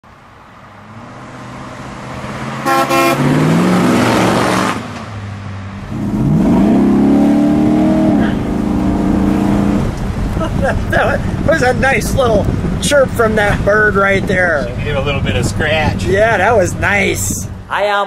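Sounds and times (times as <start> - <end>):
car engine accelerating past: 0.8 - 10.5
car horn toots: 2.6 - 3.3.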